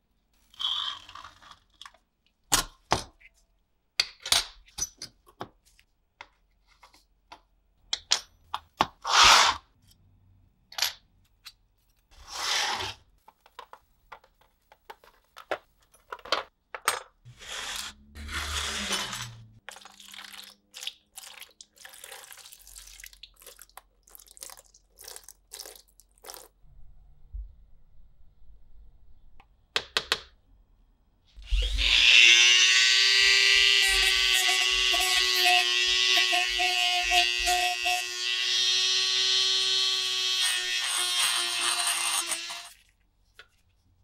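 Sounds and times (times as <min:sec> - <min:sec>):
scraping noises: 0:12.0 - 0:13.5, 0:17.3 - 0:19.6.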